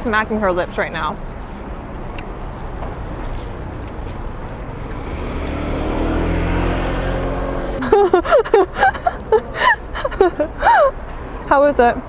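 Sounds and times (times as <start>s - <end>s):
vehicle passing: 0.6s - 9.3s.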